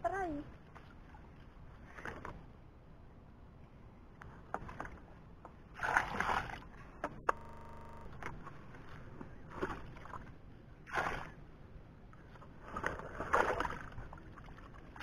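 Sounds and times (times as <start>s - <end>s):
muddy water sloshing and splashing: 4.6s - 6.9s, 8.2s - 11.6s, 12.2s - 15.0s
brief steady buzz: 7.2s - 8.4s.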